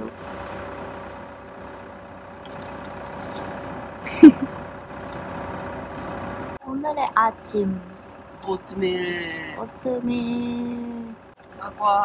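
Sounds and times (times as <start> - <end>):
steady hum: 0.0 - 12.0
dry oats rustling and rattling: 2.4 - 3.9, 4.9 - 6.6.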